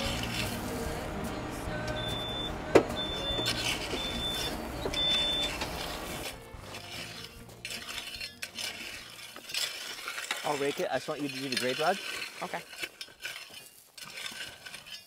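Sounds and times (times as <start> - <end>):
tools scraping through gravel: 0.0 - 1.0, 3.0 - 15.0
tractor engine running: 0.0 - 7.9.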